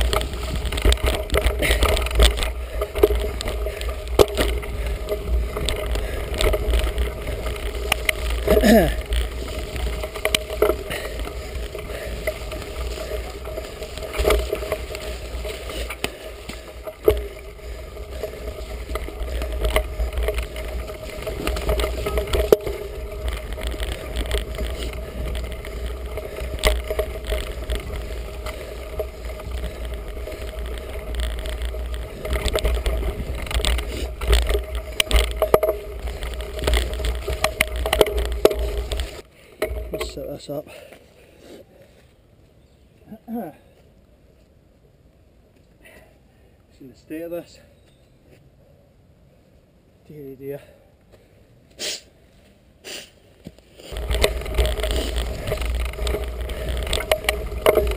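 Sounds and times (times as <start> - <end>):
bike knocks and rattles: 0.0 - 40.9, 53.5 - 57.9
wind and tyres rumbling: 0.0 - 57.9.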